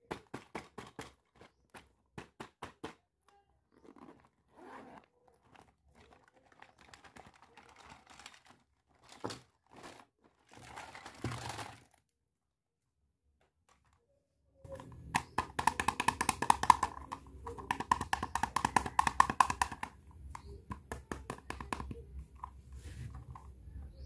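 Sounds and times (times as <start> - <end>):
plastic toy handling clicks: 14.7 - 20.5.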